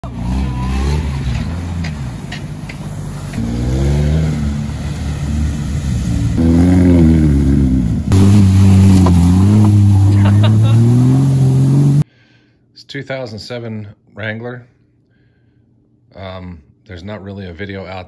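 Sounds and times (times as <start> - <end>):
engines revving: 0.0 - 12.0
mud and water splashing: 0.7 - 12.0.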